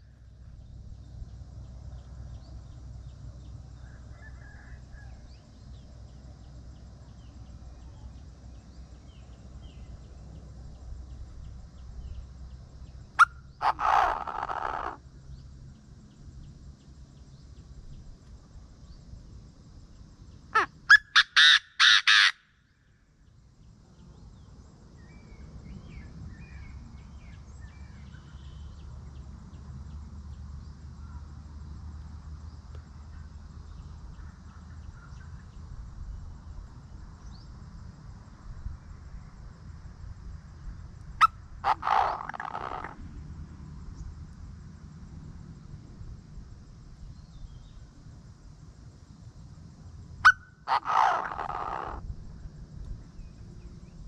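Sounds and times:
bird harsh calls: 13.2s - 15.0s, 20.5s - 22.5s, 41.2s - 43.0s, 50.2s - 52.0s.

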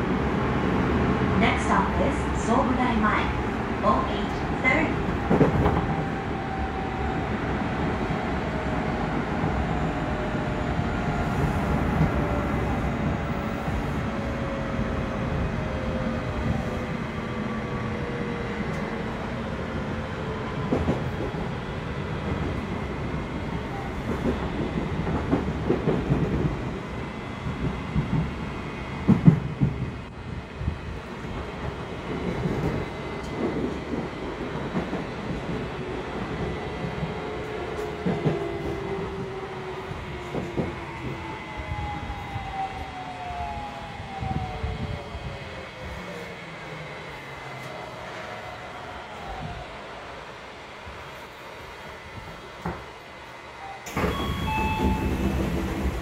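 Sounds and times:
wheels rumbling on rail: 20.5s - 43.1s, 53.8s - 56.0s
train inverter and motor whine: 30.0s - 56.0s.

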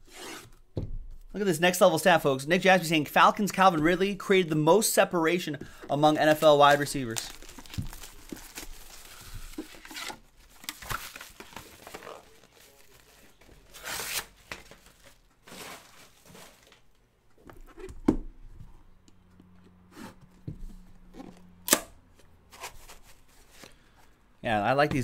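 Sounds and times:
plastic wrap tearing and crumpling: 6.2s - 16.9s.

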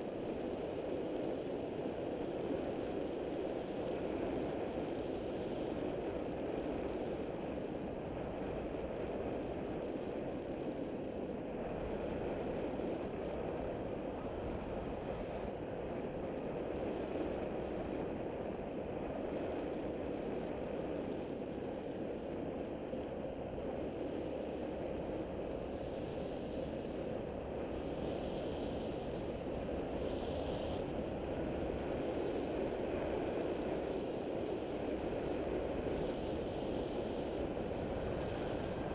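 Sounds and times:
wind rushing over microphone: 0.0s - 38.9s.

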